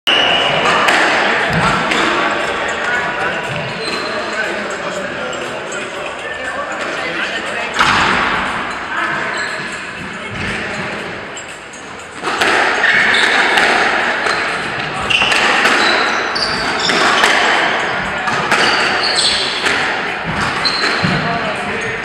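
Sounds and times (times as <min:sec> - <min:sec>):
squash ball smacking rackets and walls: 0:00.1 - 0:02.4, 0:12.2 - 0:21.4
shoes squeaking on wooden floor: 0:00.1 - 0:04.5, 0:07.7 - 0:22.0.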